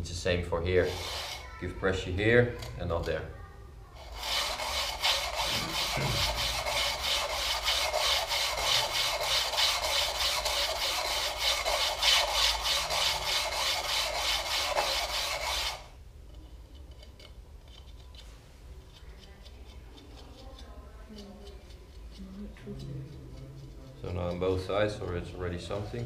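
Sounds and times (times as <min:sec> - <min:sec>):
sharpening stone scraping blades: 0:00.8 - 0:01.4, 0:04.0 - 0:15.9, 0:18.9 - 0:26.0.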